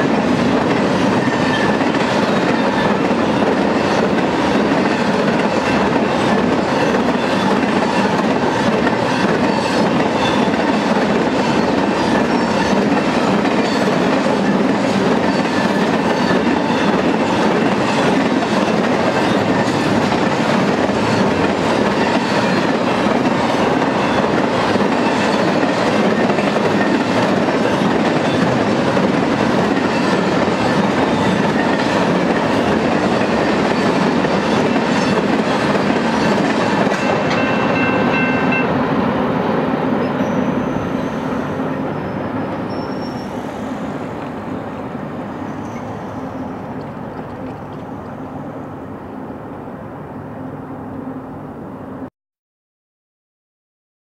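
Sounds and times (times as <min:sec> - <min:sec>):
freight train wheels rumbling: 0:00.0 - 0:50.7
thin wheel squeal: 0:40.1 - 0:43.7.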